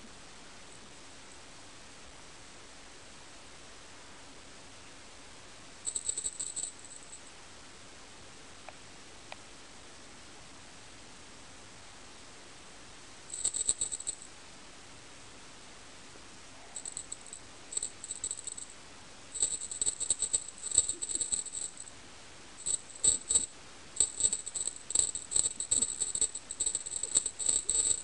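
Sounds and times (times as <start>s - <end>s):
small jingle bell shaken: 5.9s - 7.2s, 13.3s - 14.3s, 16.8s - 18.7s, 19.4s - 21.9s, 22.6s - 28.0s.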